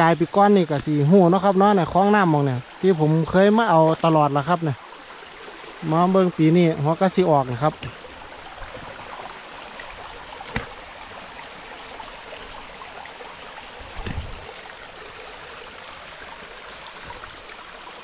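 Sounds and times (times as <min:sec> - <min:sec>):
stream water flowing: 0:00.0 - 0:18.0
dull thump: 0:10.5 - 0:10.8, 0:13.9 - 0:14.5.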